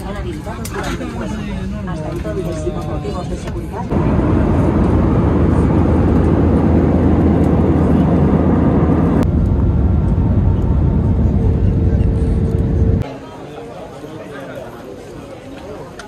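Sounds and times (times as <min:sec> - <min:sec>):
airliner cabin engine rumble: 0:03.5 - 0:13.0.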